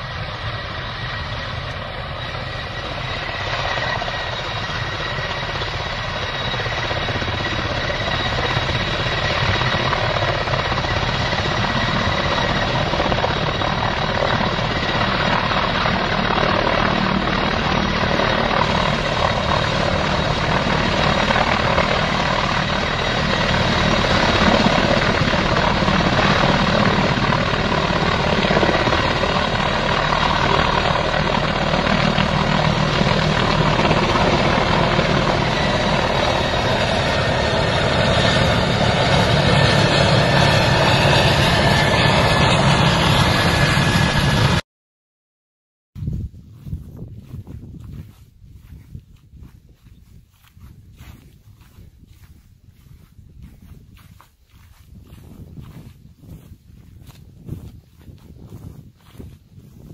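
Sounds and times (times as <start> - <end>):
helicopter rotor beating: 0.0 - 44.6, 46.0 - 59.9
turbines running: 0.0 - 44.6.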